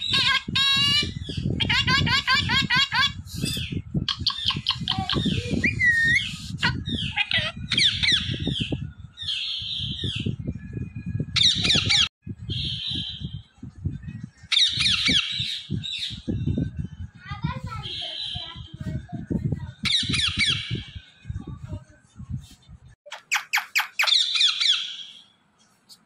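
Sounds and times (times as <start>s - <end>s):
parrots squawking: 0.0s - 8.4s, 23.1s - 25.2s.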